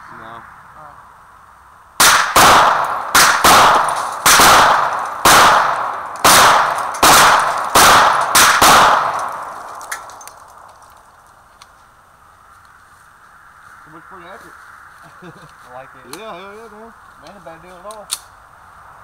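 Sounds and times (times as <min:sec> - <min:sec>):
gunshots with echo: 0:02.0 - 0:09.7.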